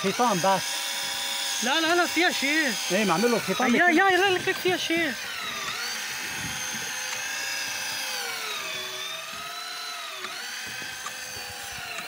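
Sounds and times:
fishing reel motor whining: 0.0s - 12.0s.

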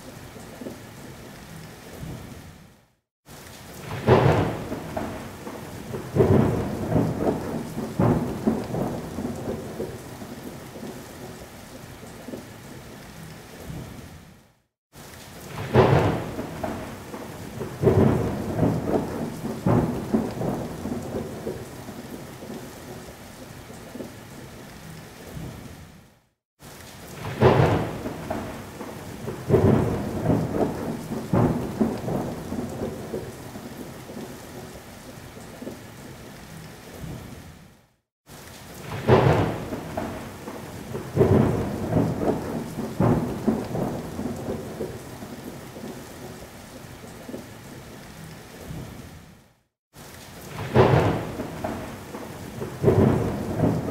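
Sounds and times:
steady rain: 0.0s - 53.9s
thunderclaps and rolling rumbles: 3.7s - 11.5s, 15.4s - 24.2s, 27.0s - 35.9s, 38.5s - 47.6s, 50.2s - 53.9s.

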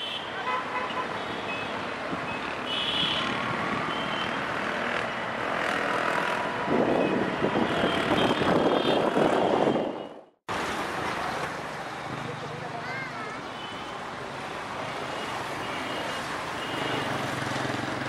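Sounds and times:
motorcycles and cars passing: 0.6s - 18.0s
loud vehicle passing: 3.2s - 9.8s.

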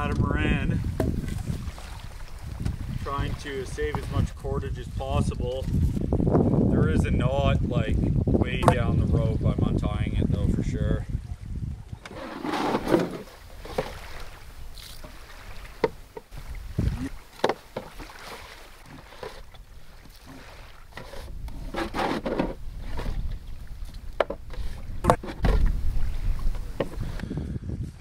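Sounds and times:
wooden poles knocking and scraping: 0.0s - 1.9s, 8.6s - 8.9s, 11.9s - 27.2s.

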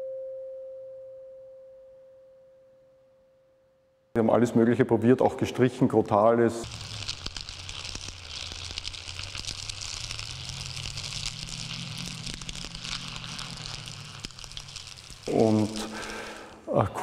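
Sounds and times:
straw crackling and rustling: 6.6s - 17.0s.

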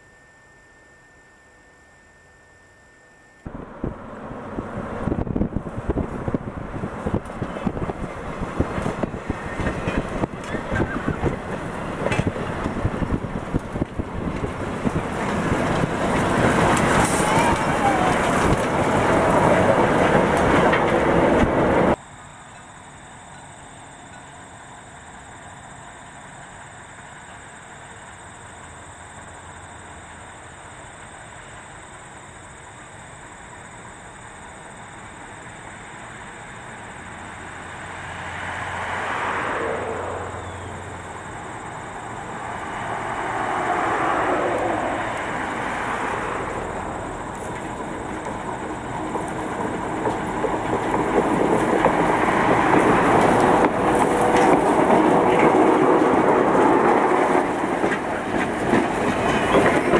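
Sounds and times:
diesel locomotive engine: 3.3s - 59.9s
train wheels on track: 3.5s - 59.9s.

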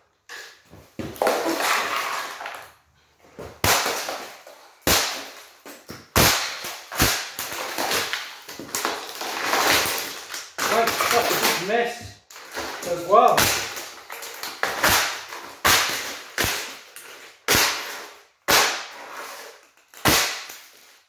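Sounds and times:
golf club smashing plastic fan: 3.6s - 5.5s, 6.1s - 11.7s
broken plastic pieces clattering: 3.7s - 11.7s.

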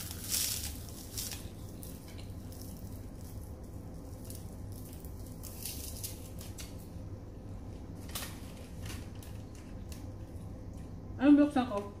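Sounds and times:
seaweed sheets being chewed: 0.0s - 6.8s.

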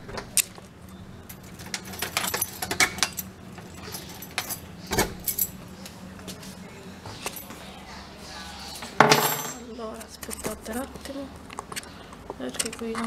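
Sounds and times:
keys jangling: 1.3s - 5.6s.

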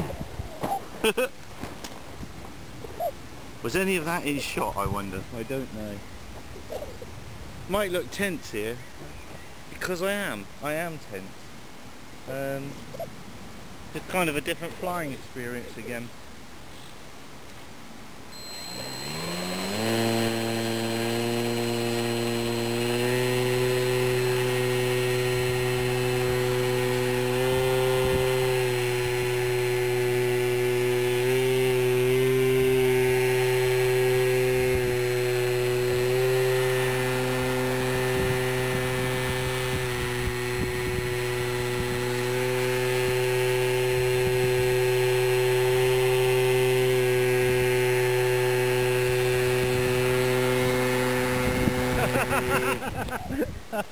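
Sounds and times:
model plane motor buzzing whine: 18.3s - 53.0s.

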